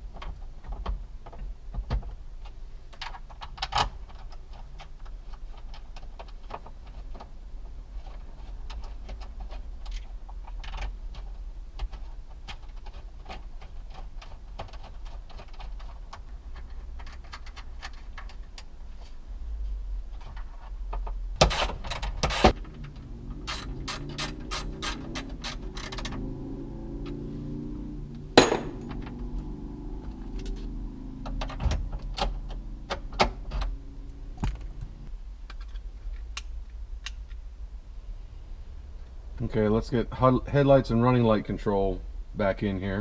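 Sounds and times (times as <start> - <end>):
low hum: 22.6 - 39.7
loud knocks: 28.4 - 28.9.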